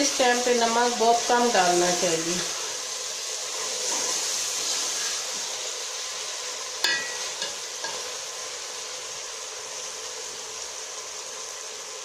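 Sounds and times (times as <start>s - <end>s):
food sizzling in pot: 0.0s - 12.0s
metal ladle clinking on pot: 6.8s - 8.0s.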